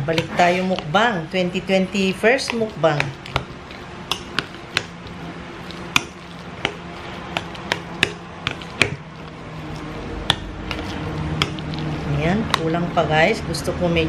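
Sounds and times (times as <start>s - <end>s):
utensil knocking against bowl: 4.1s - 5.0s, 5.7s - 9.0s.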